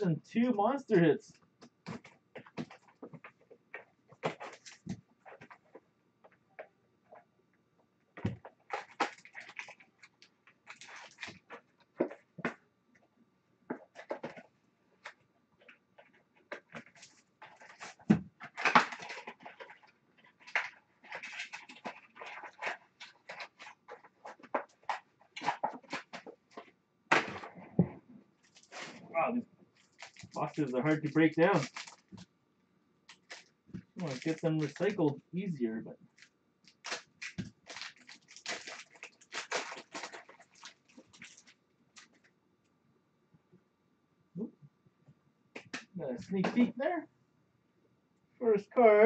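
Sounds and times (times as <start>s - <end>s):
cardboard box ripping and crinkling: 36.7s - 41.5s.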